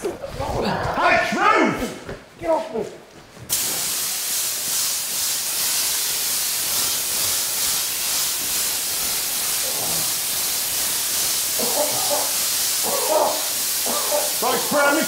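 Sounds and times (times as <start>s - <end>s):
spray gun hissing: 3.5s - 15.0s.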